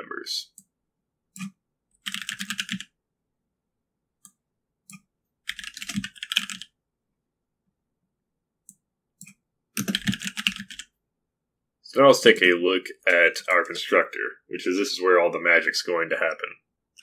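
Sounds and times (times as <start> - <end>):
typing on computer keyboard: 1.4 - 2.9, 5.5 - 6.7, 9.2 - 10.9.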